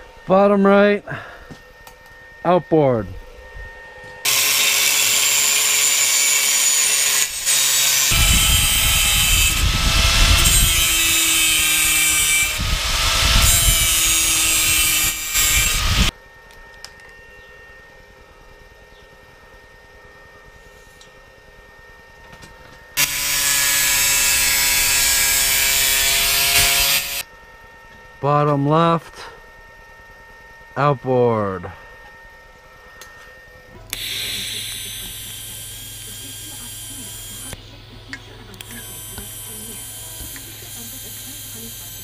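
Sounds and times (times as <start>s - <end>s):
angle grinder cutting steel: 4.2s - 16.1s, 23.0s - 27.2s, 33.9s - 42.0s.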